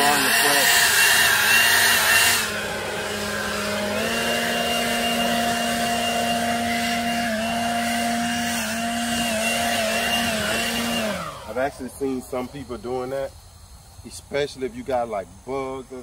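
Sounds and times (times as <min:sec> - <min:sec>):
leaf blower running: 0:00.0 - 0:13.3.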